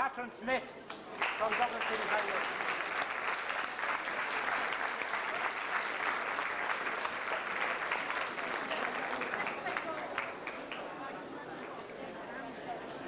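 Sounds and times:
large audience applauding: 0.9 - 11.1.

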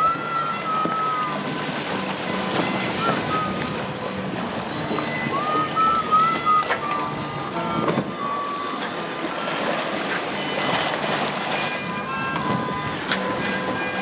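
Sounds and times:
thin whistling tones: 0.0 - 1.7, 2.7 - 4.1, 4.7 - 7.4, 8.1 - 10.7
water splashing: 0.0 - 14.0
wind buffeting microphone: 0.0 - 14.0.

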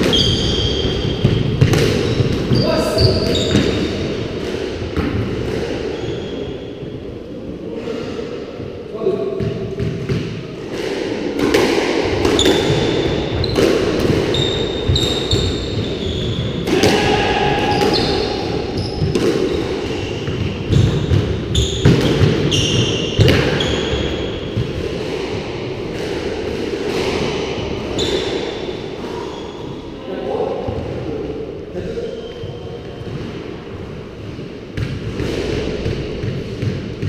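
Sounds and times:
shoes squeaking on wooden floor: 0.0 - 1.5, 12.3 - 16.6, 17.7 - 24.5.

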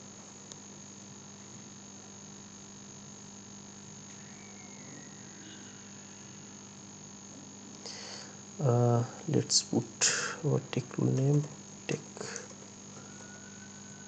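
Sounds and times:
electrical hum with high whine: 0.0 - 14.0.

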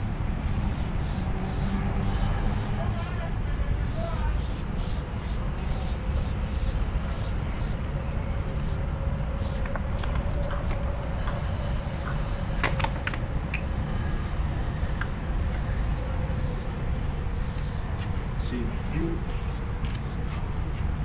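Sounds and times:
spray paint can hissing: 0.0 - 3.1, 3.9 - 7.8, 9.4 - 9.7, 11.3 - 13.1, 15.3 - 16.6, 17.3 - 20.8.

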